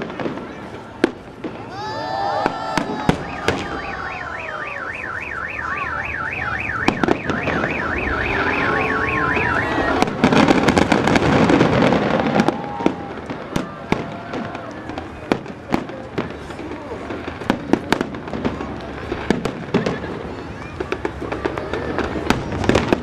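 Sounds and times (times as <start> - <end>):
fireworks bangs and crackle: 0.0 - 23.0
electronic alarm warbling: 3.2 - 10.0.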